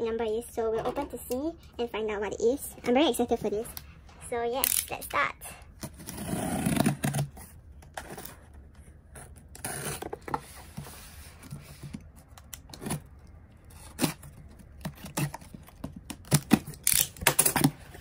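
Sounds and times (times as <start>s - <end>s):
box cutter scraping tape: 5.8s - 7.4s, 9.2s - 10.5s, 12.7s - 18.0s.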